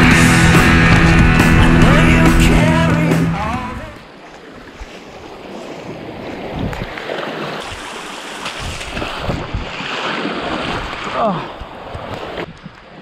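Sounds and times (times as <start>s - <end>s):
feet wading through water: 4.0s - 13.0s
small waves washing over rocks: 4.1s - 13.0s.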